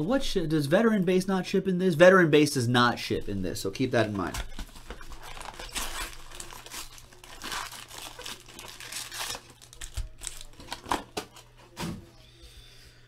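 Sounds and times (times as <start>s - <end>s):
foil wrappers crinkling: 4.3s - 11.6s.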